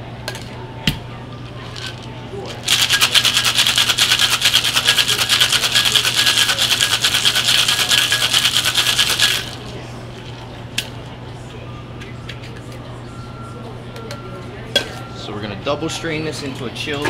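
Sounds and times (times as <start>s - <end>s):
cocktail shaker rattling: 1.7s - 9.7s.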